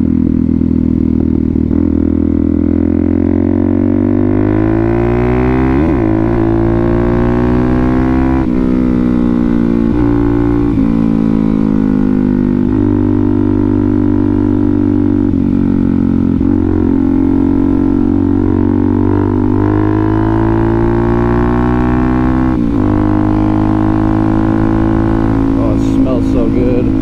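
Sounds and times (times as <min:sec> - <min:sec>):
motorcycle engine running: 0:00.0 - 0:27.0.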